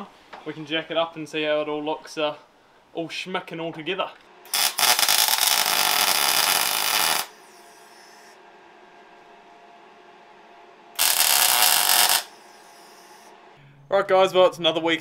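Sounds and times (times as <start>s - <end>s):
welder arc running: 4.4s - 8.6s, 10.9s - 13.6s.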